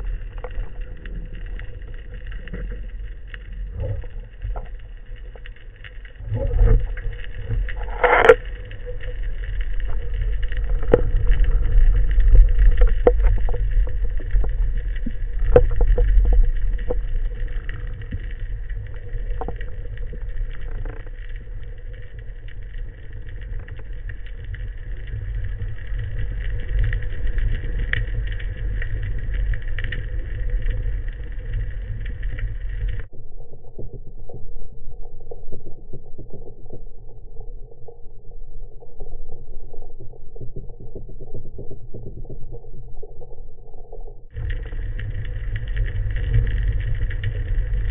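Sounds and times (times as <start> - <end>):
underwater rumble: 0.0 - 47.9
crackling burst: 44.4 - 47.9.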